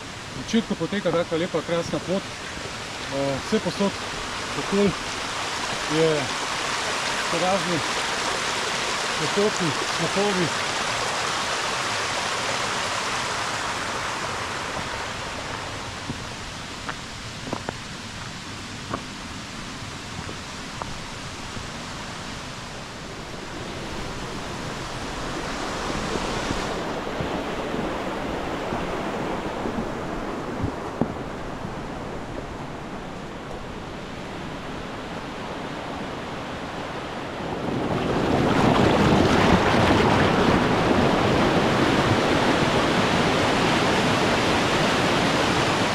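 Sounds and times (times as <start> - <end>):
rushing stream water: 0.0 - 45.9.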